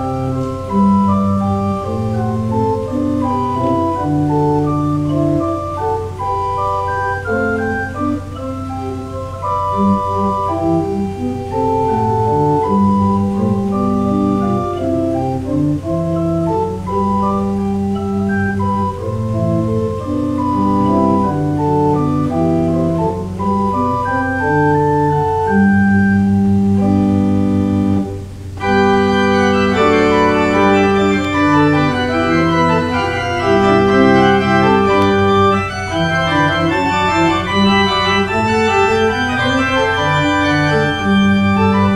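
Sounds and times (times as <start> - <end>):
church organ playing chords: 0.0 - 41.9.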